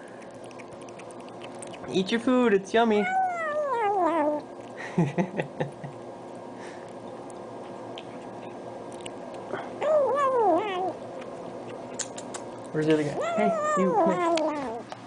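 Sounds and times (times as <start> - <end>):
kitten meowing: 3.0 - 4.4, 9.8 - 11.0, 13.1 - 14.9.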